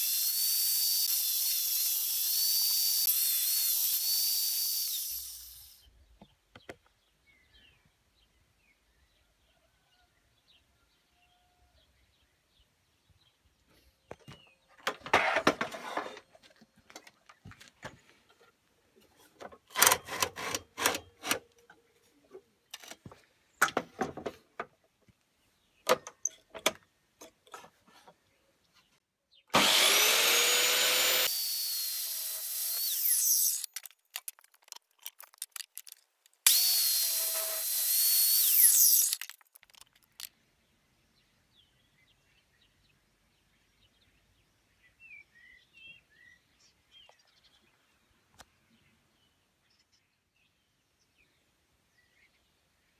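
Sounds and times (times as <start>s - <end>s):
mitre saw cutting wood: 0.0s - 5.8s, 19.7s - 21.4s, 29.5s - 33.9s, 36.5s - 39.4s.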